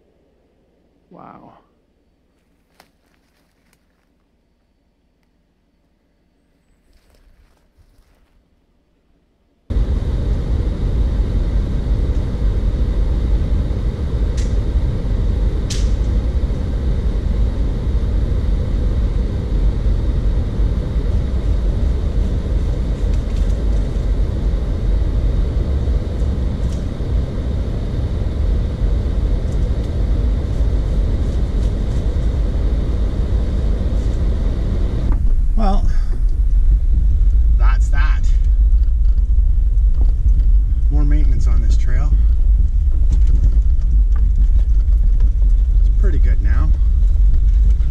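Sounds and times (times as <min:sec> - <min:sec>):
engine and tyres rumbling: 0:09.7 - 0:47.9.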